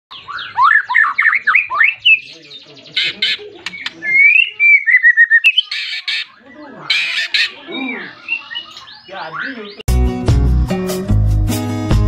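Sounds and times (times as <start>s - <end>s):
bird singing whistled notes: 0.1s - 2.7s, 3.7s - 9.8s
harsh rasping bird calls: 0.1s - 9.9s.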